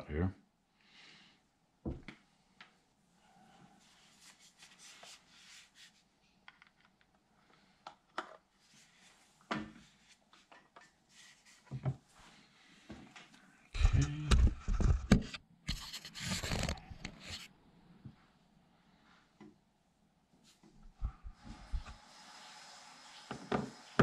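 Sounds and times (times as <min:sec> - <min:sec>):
soft rubbing and scraping: 0:03.1 - 0:06.1, 0:08.6 - 0:13.2, 0:15.7 - 0:17.6.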